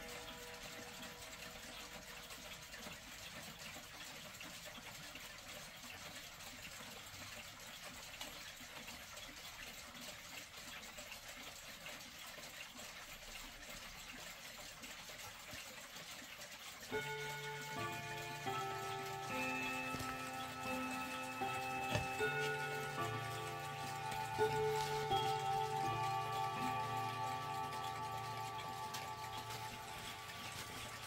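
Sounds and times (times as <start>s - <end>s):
clock chime ringing: 16.9s - 31.0s.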